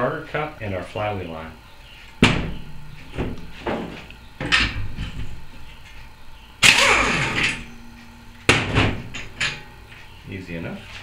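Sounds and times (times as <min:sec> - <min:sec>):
clunks and knocks: 0:02.2 - 0:05.4
pneumatic impact wrench burst: 0:06.6 - 0:07.7.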